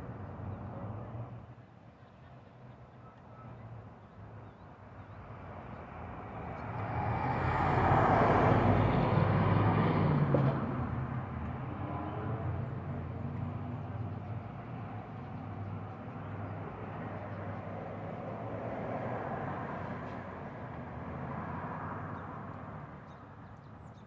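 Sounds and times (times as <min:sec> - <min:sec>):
low traffic hum: 0:00.0 - 0:24.0
vehicle passing: 0:05.8 - 0:14.3.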